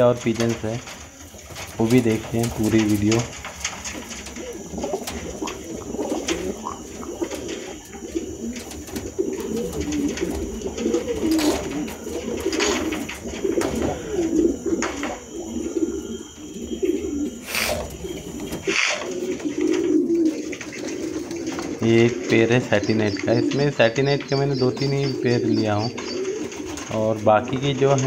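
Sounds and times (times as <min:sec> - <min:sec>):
pigeons cooing: 0:00.0 - 0:28.0.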